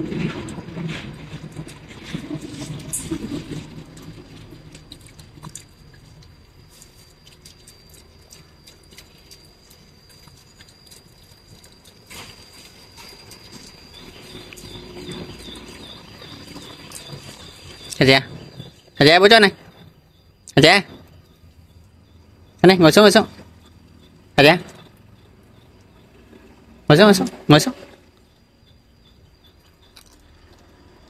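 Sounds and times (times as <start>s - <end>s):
dog chewing: 1.4s - 18.8s.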